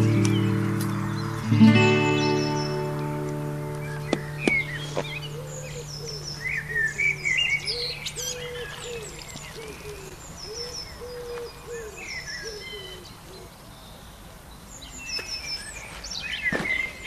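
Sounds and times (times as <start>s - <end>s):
music: 0.0s - 5.9s
low cooing bird call: 0.0s - 13.7s
songbirds chirping: 0.0s - 17.0s
sharp knocks: 4.1s - 4.7s.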